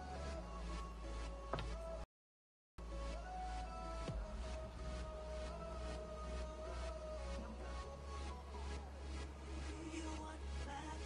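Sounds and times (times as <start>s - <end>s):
background music with a beat: 0.0s - 2.0s, 2.8s - 11.0s.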